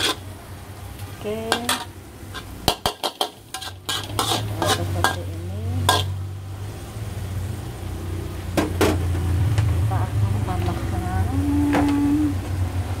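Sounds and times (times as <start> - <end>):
metal spatula scraping a wok: 0.0 - 0.3, 1.0 - 6.4
faint sizzle: 0.0 - 13.0.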